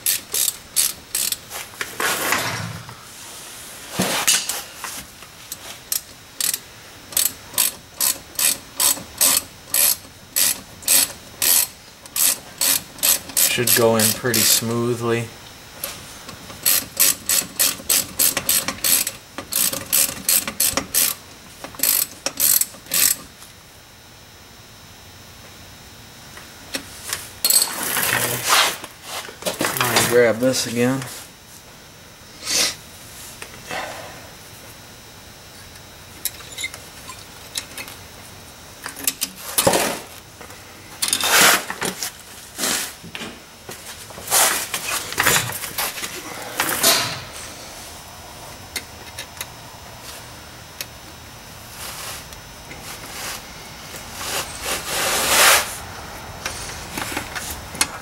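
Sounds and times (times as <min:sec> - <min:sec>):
ratchet wrench clicking: 0:00.0 - 0:01.4, 0:05.5 - 0:14.6, 0:16.6 - 0:21.2, 0:21.8 - 0:23.2.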